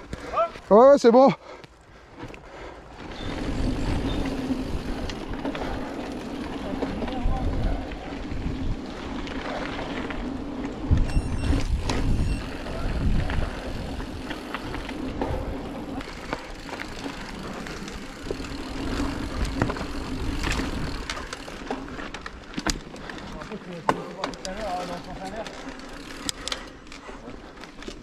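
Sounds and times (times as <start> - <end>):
bike tyres rolling on dirt: 0.0 - 28.0
bike clicks and rattles: 1.6 - 28.0
wind rumble on microphone: 6.8 - 15.8.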